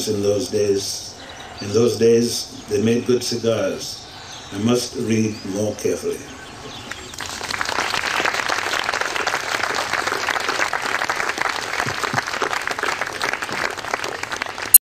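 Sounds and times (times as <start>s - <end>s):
audience applauding: 6.9s - 14.8s.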